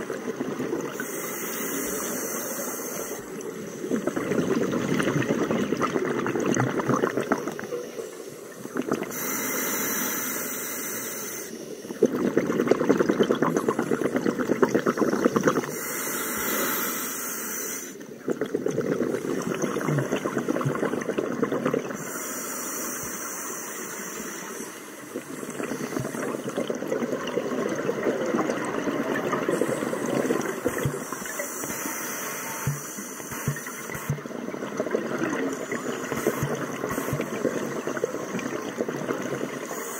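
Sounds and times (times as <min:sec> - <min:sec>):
regulator inhale hiss: 0:00.9 - 0:04.2, 0:07.5 - 0:12.0, 0:14.8 - 0:18.2, 0:21.9 - 0:26.7, 0:29.5 - 0:34.3, 0:35.5 - 0:38.1, 0:39.6 - 0:39.9
exhaled bubbles rushing: 0:03.8 - 0:07.7, 0:12.0 - 0:15.7, 0:18.2 - 0:22.0, 0:25.2 - 0:31.4, 0:33.4 - 0:39.7.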